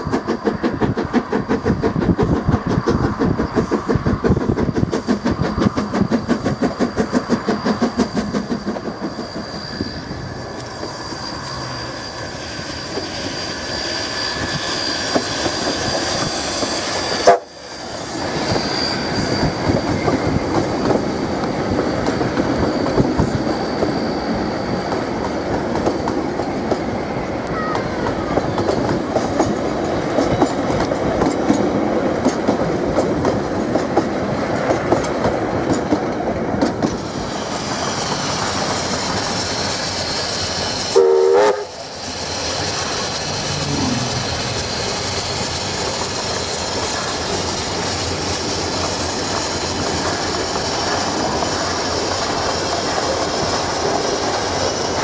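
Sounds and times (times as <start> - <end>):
steam locomotive working: 0.0 - 55.0
carriages clicking over rail joints: 27.5 - 40.9.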